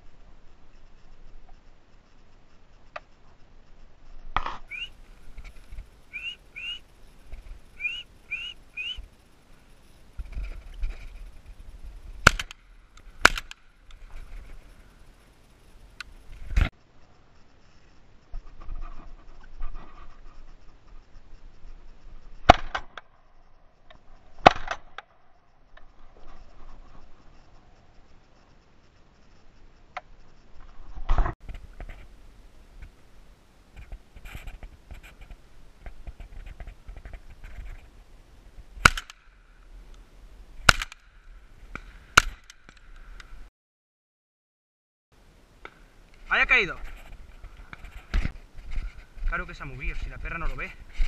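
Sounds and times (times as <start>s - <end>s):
bird whistled chirps: 4.7s - 5.0s, 6.1s - 6.8s, 7.8s - 9.1s
shotgun shots: 12.2s - 12.6s, 13.2s - 13.6s, 38.8s - 39.2s, 40.6s - 41.0s
sharp crack: 12.2s - 14.0s, 22.4s - 23.1s, 24.4s - 25.1s, 38.8s - 39.7s, 40.6s - 43.1s
rustling of gun being handled: 33.7s - 38.0s, 46.2s - 49.3s.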